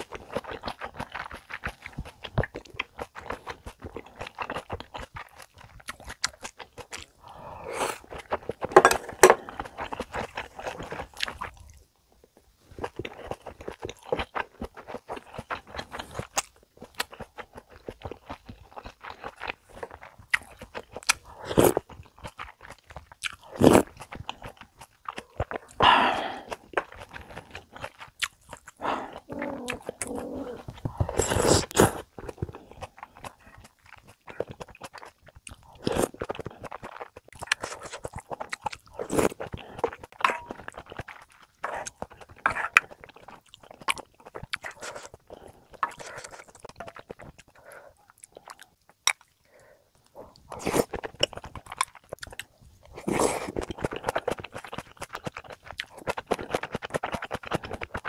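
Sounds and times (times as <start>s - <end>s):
person chewing food: 0.0s - 58.0s
wet mouth clicks: 48.2s - 49.4s.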